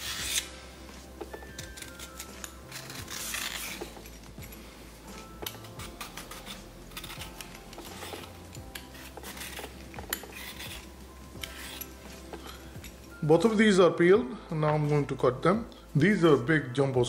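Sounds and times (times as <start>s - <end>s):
vegetable peeler scraping: 0.0s - 0.6s, 1.4s - 4.5s, 5.4s - 12.0s.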